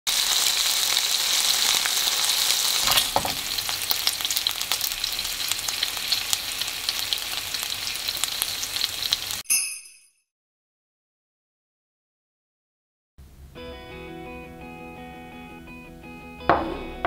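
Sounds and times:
meat sizzling in oil: 0:00.1 - 0:09.4
oil popping and crackling: 0:00.1 - 0:09.4.

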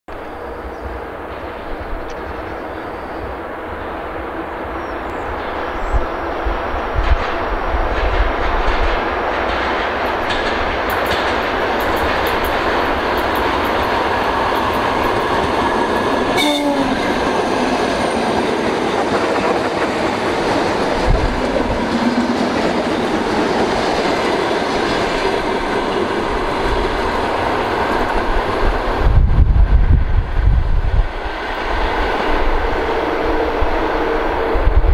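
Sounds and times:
train wheels rumbling on rails: 0:00.1 - 0:34.9
train horn toot: 0:16.3 - 0:17.2.

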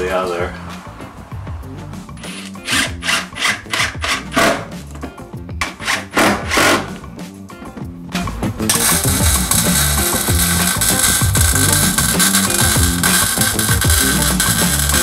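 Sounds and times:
power drill driving screw: 0:02.2 - 0:04.7, 0:05.6 - 0:07.0, 0:08.7 - 0:15.0.

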